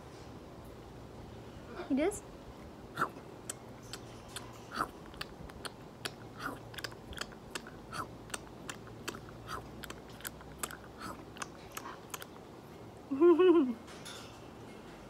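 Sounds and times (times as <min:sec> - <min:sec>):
parrot clicking: 0:03.5 - 0:12.4.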